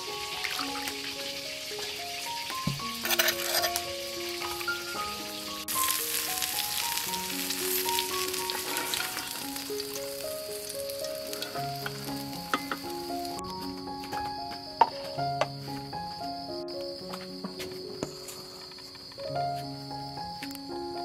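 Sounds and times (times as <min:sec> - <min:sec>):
oil sizzling in a frying pan: 0:00.0 - 0:13.4
slow background music: 0:00.0 - 0:21.0.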